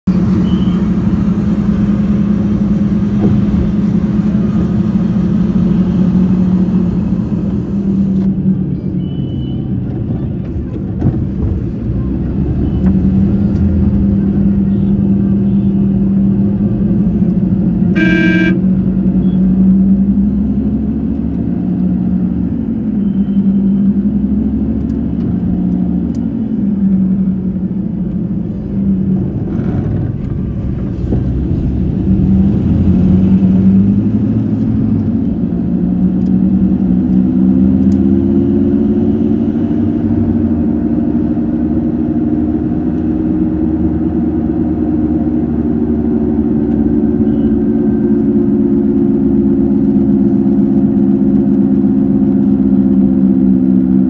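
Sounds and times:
car engine hum: 0:00.0 - 0:54.0
short horn toot: 0:18.0 - 0:18.6.

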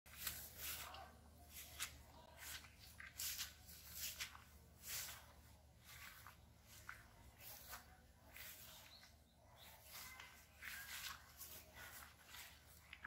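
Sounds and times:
footsteps in thick grass: 0:00.1 - 0:13.0.

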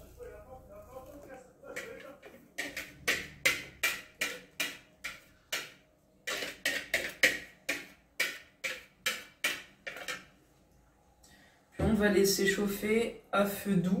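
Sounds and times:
utensil scraping plastic bowl: 0:01.2 - 0:10.3.

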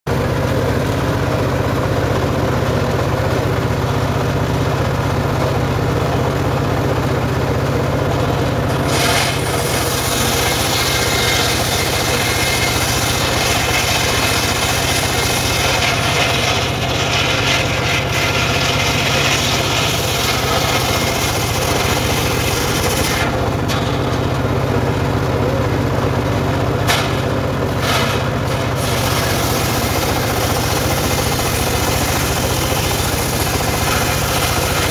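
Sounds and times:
saw bench engine running: 0:00.1 - 0:34.9
saw blade cutting log: 0:08.7 - 0:24.5, 0:26.8 - 0:34.9.

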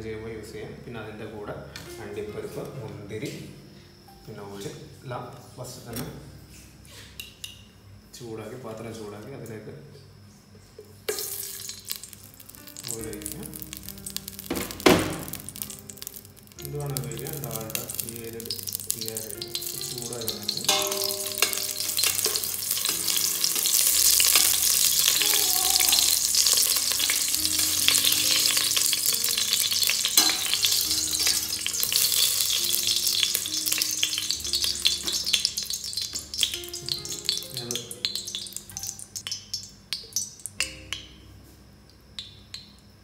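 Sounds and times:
ghee sizzling and crackling: 0:10.9 - 0:41.2.

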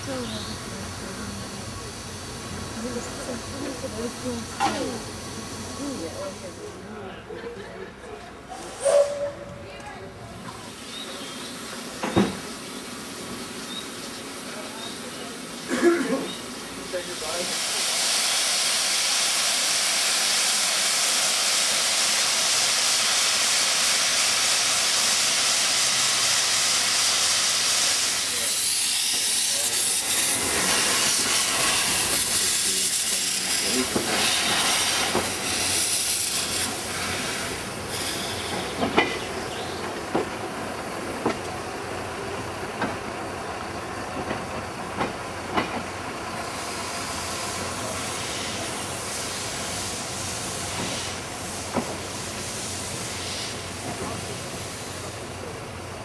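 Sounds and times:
steam locomotive hissing steam: 0:00.0 - 0:09.6, 0:10.2 - 0:56.0.

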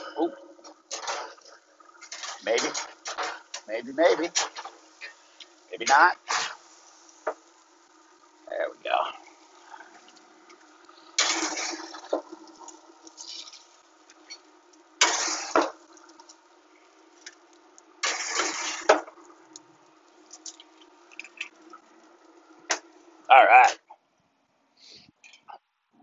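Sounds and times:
steady hum: 0:00.0 - 0:25.5
metal spatula scraping grill grates: 0:05.8 - 0:07.3, 0:15.0 - 0:15.7, 0:18.0 - 0:19.0.

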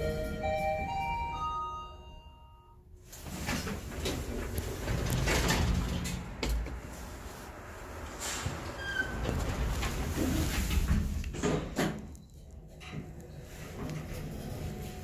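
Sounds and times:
elevator arrival chime: 0:00.0 - 0:02.9
elevator doors sliding open: 0:03.0 - 0:15.0.

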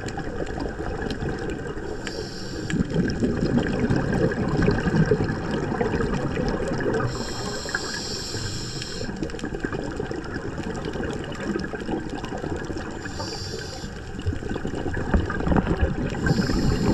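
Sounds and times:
bubbles rumbling underwater: 0:00.0 - 0:16.9
underwater noise: 0:00.0 - 0:16.9
regulator hissing inhale: 0:01.8 - 0:03.0, 0:07.0 - 0:09.2, 0:13.0 - 0:14.1, 0:16.1 - 0:16.9.

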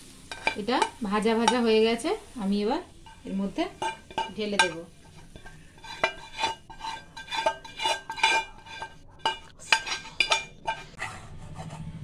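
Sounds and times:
metal utensil knocking steel bowl: 0:00.3 - 0:01.7, 0:03.0 - 0:11.0.

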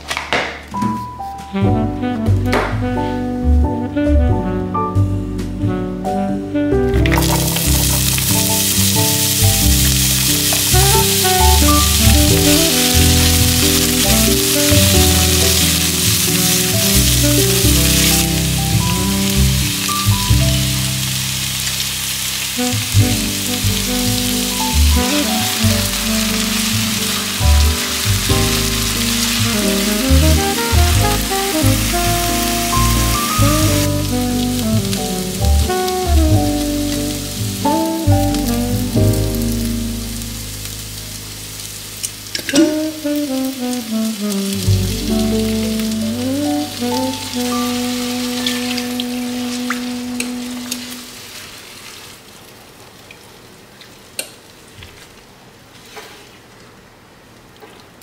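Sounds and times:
soft background music: 0:00.8 - 0:51.1
onions sizzling in oil: 0:07.1 - 0:52.4.

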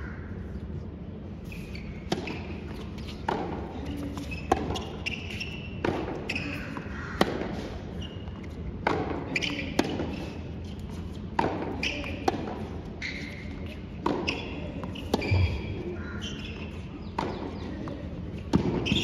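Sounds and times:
rackets striking tennis ball: 0:02.0 - 0:19.0
ball bouncing on hard court: 0:02.1 - 0:10.3, 0:11.4 - 0:17.7, 0:18.4 - 0:19.0.

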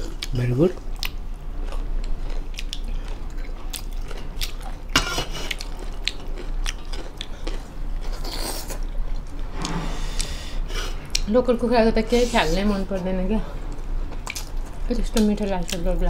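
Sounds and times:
chewing and lip-smacking: 0:00.0 - 0:09.4, 0:13.6 - 0:16.0
loud rough noise: 0:09.4 - 0:10.7.

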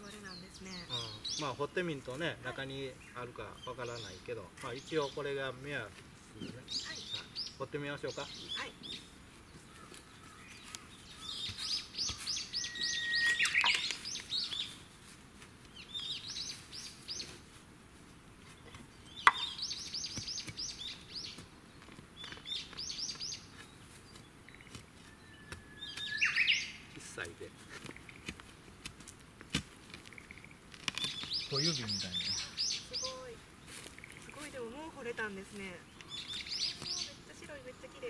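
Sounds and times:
songbird singing: 0:00.0 - 0:17.6, 0:18.3 - 0:38.0
digging tool knocking ground: 0:18.7 - 0:20.7.

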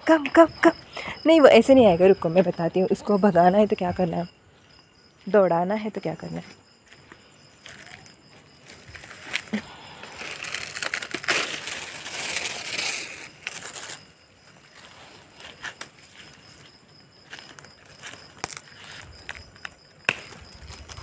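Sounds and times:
dry crinkling and rustling: 0:06.9 - 0:21.0.

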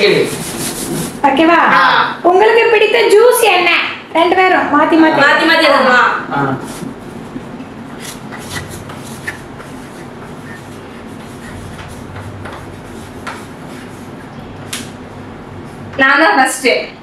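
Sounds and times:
chalk scratching on a slate: 0:00.0 - 0:01.2, 0:07.9 - 0:14.3
steady background noise: 0:00.0 - 0:17.0.

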